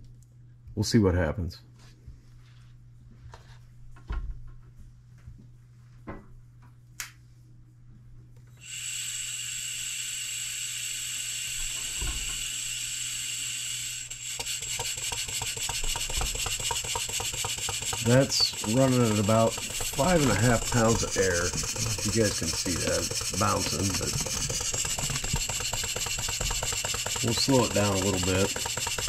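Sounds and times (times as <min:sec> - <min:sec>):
model engine ticking: 0:14.2 - 0:29.0
compressed air hissing: 0:14.3 - 0:29.0.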